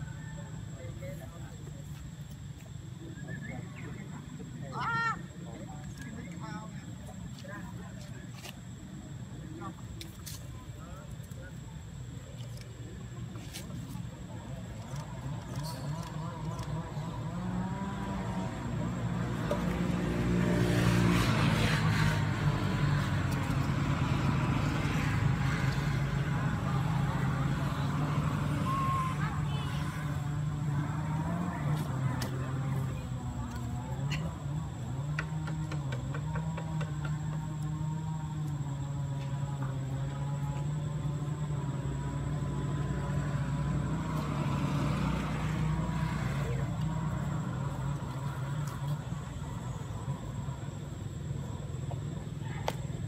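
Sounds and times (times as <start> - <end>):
vehicle engine running: 13.8 - 52.6.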